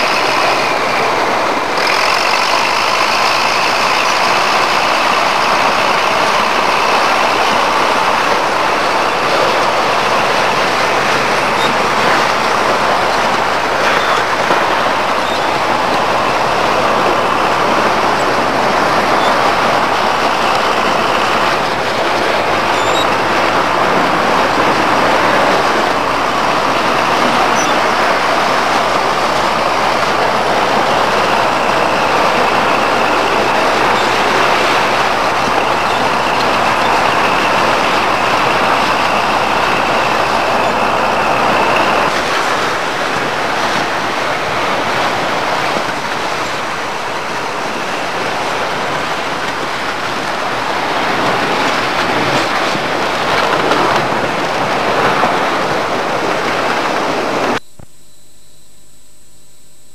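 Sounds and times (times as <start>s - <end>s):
tracked tractor engine and tracks clatter: 0.0s - 57.6s
low hum: 57.4s - 59.9s.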